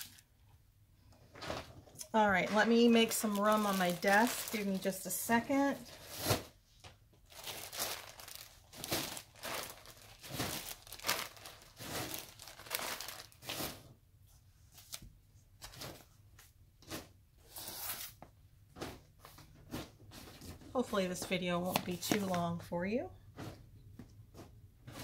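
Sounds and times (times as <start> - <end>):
plastic bags rustling and crinkling: 1.3 - 14.0.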